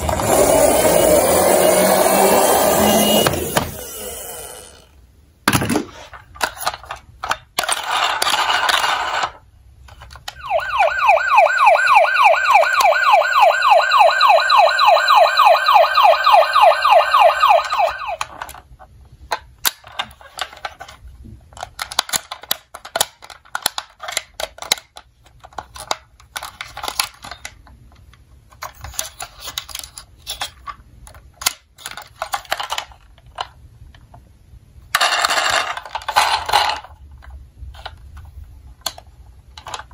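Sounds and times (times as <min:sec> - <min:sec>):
plastic toy cars rattling: 0:05.5 - 0:10.4, 0:17.9 - 0:34.3, 0:34.9 - 0:39.9
toy siren yelping: 0:10.3 - 0:18.4.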